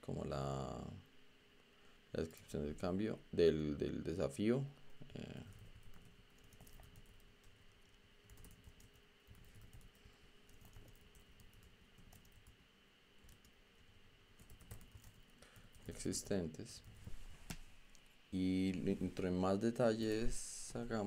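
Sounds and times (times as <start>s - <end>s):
typing on computer keyboard: 5.6s - 7.6s, 8.2s - 12.5s, 14.4s - 16.0s.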